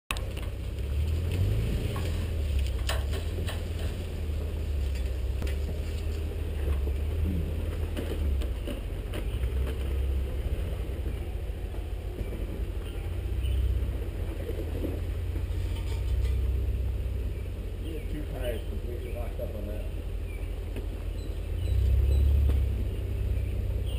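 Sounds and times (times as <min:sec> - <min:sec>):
vehicle body knocking and rattling: 0:00.1 - 0:17.6
vehicle engine running low: 0:00.1 - 0:23.9.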